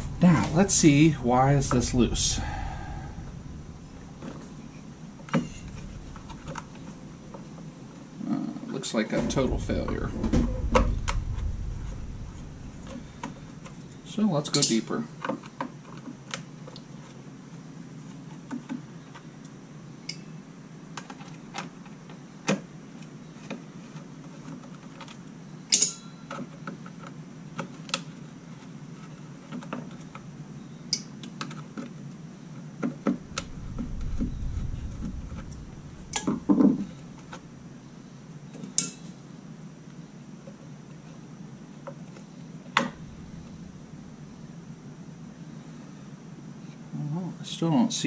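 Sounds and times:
low rumble: 0:00.0 - 0:08.2, 0:09.1 - 0:14.9, 0:33.1 - 0:38.2, 0:42.6 - 0:45.8.

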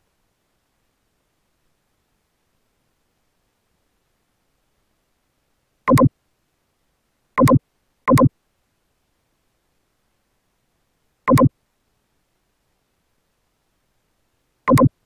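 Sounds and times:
computer mouse clicks: 0:05.9 - 0:06.1, 0:07.4 - 0:08.3, 0:11.3 - 0:11.5, 0:14.7 - 0:14.9.

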